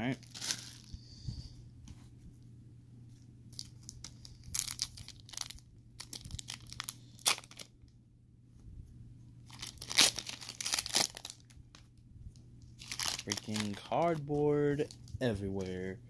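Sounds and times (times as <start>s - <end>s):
wrapper crinkling while torn: 0.0s - 0.9s, 3.5s - 7.7s, 9.5s - 11.8s, 12.8s - 15.7s.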